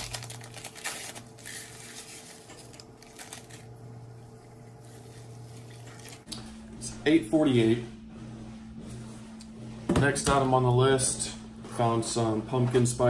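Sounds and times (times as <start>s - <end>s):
paper packet tearing and rustling: 0.0s - 3.8s
low steady hum: 0.0s - 13.0s.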